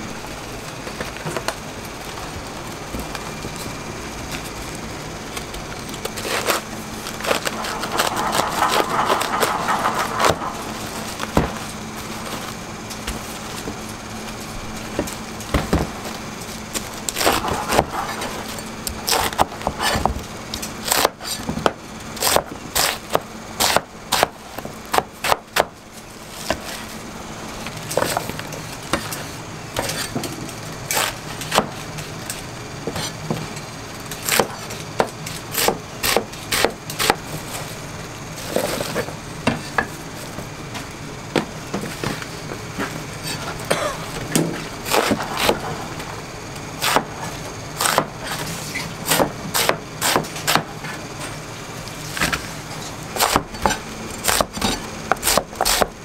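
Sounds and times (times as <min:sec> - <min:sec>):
low hum: 0:00.0 - 0:20.5.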